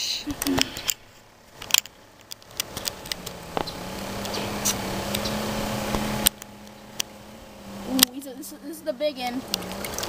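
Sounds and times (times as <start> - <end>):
steady low hum: 0.2 - 10.0
water splashing in a bucket: 9.5 - 10.0.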